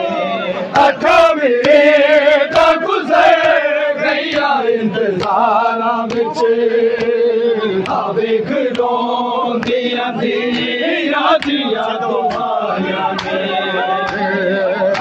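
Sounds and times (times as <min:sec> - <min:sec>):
men chanting a lament: 0:00.0 - 0:15.0
hands slapping chests: 0:05.1 - 0:06.4, 0:10.5 - 0:11.7.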